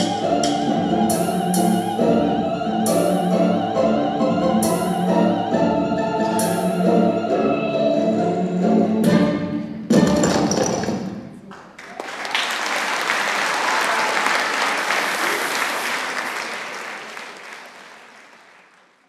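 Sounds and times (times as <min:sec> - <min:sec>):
audience applauding: 0:11.5 - 0:19.0.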